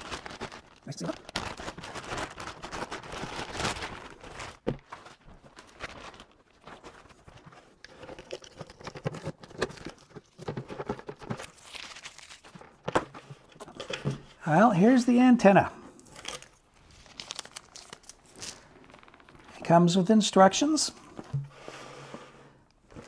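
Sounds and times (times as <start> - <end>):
plastic bag crinkling: 0.0 - 13.0, 16.0 - 19.6.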